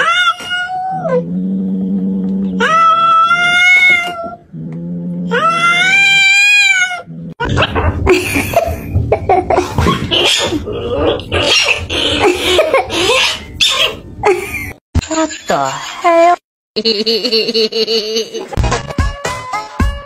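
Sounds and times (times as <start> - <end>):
cat yowling: 5.3 - 7.1
cat growling: 9.6 - 14.0.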